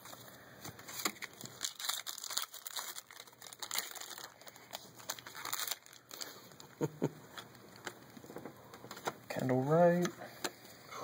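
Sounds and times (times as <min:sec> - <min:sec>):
foil wrapper crinkling and tearing: 0:00.0 - 0:08.4.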